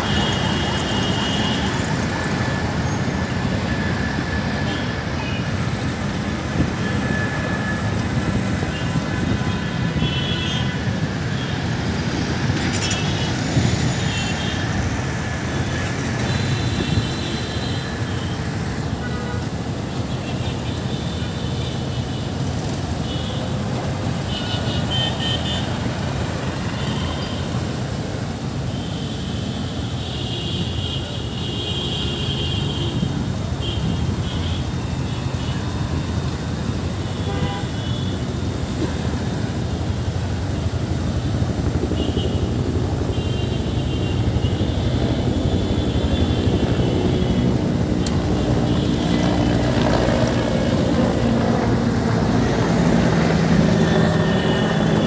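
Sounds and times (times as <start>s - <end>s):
higher-pitched traffic sounds: 0.0s - 28.2s, 32.0s - 55.0s
motorcycle engines passing: 0.0s - 28.6s, 32.9s - 55.0s
car engines passing: 44.2s - 55.0s.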